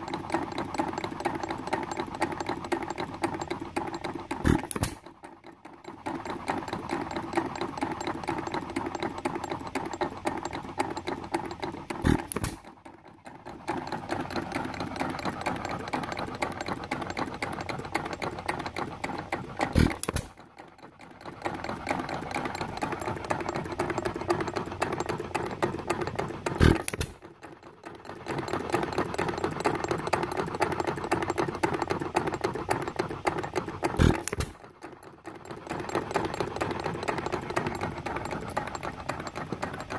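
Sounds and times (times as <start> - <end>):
valve gear clatter: 0.0 - 39.9.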